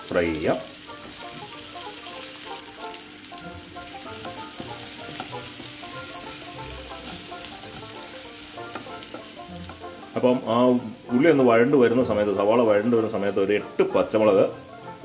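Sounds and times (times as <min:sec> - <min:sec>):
onions sizzling in a frying pan: 0:00.0 - 0:15.0
wooden spatula stirring: 0:03.3 - 0:10.4.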